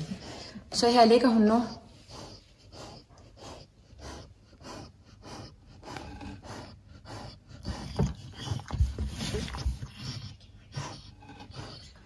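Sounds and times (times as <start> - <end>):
dog breathing quickly: 0.0 - 12.0
bump and rustle of movement: 7.7 - 10.2.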